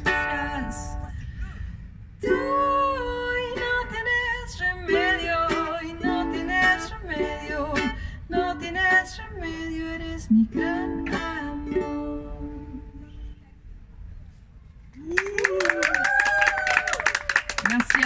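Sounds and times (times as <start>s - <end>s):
ukulele strumming: 0.0s - 1.1s, 2.2s - 13.3s.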